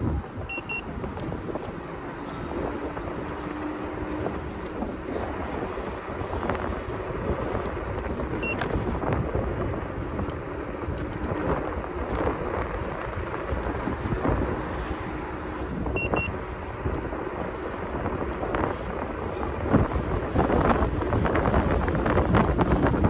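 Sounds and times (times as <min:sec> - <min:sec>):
scooter road rumble: 0:00.0 - 0:23.0
wind buffeting microphone: 0:00.0 - 0:23.0
high electronic beeps: 0:00.5 - 0:00.9, 0:08.4 - 0:08.7, 0:16.0 - 0:16.3.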